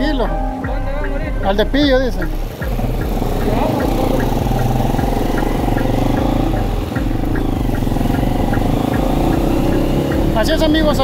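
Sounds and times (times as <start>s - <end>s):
vehicle engine running: 1.8s - 11.0s
faint regular ticking: 2.2s - 11.0s.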